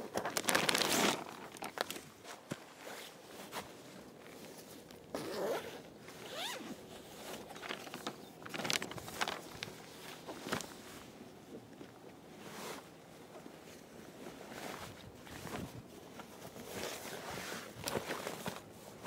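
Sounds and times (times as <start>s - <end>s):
paper rustling: 0.1s - 5.1s, 6.9s - 11.1s
fabric handling: 0.1s - 19.0s
zipper being pulled open: 5.1s - 6.8s.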